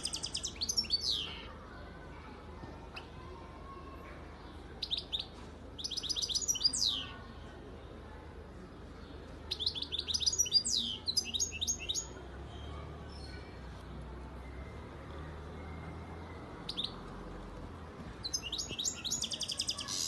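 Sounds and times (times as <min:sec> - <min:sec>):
goldfinch singing: 0:00.0 - 0:01.5, 0:04.8 - 0:07.1, 0:09.5 - 0:12.2, 0:18.2 - 0:20.0.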